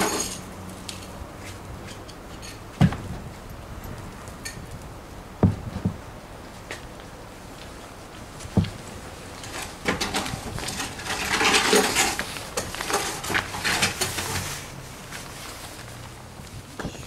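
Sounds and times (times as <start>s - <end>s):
dull thump: 2.8s - 3.3s, 5.4s - 6.1s, 8.5s - 8.8s.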